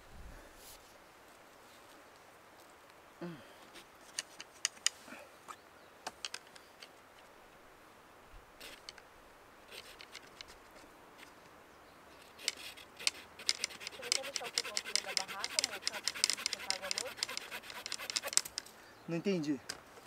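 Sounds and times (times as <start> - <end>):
knife whittling wood: 12.4 - 18.6.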